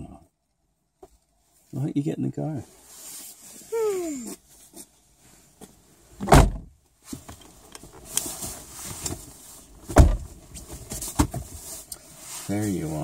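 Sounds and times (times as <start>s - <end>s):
knocks and rustling: 5.6s - 11.7s
car doors slamming shut: 6.2s - 6.7s, 9.9s - 10.3s.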